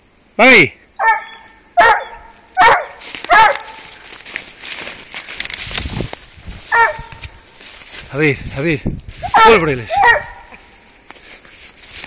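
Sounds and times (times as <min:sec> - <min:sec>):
dog barking: 0:01.0 - 0:03.8, 0:06.7 - 0:07.2, 0:09.2 - 0:10.6
rustling through dry leaves: 0:02.0 - 0:12.0.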